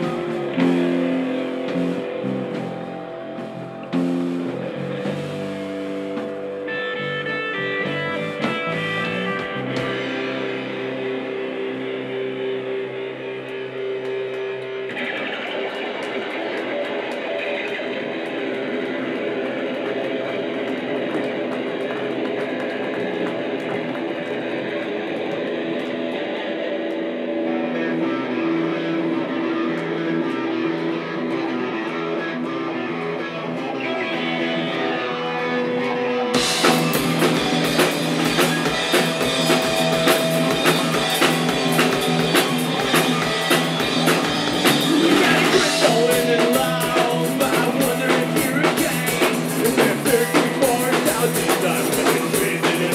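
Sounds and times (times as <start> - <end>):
drum kit beat: 0.0 - 12.2, 35.9 - 52.9
guitars ringing: 0.0 - 22.4, 23.4 - 52.9
live rock band: 0.0 - 52.9.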